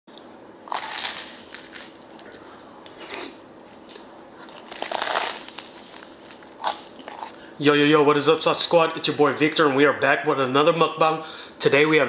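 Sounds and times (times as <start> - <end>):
crunchy bites into bread crust: 4.6 - 7.0.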